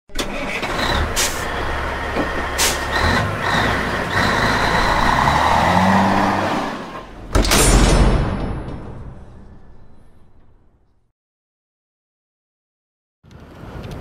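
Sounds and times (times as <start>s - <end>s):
truck engine rumbling: 0.1s - 8.4s.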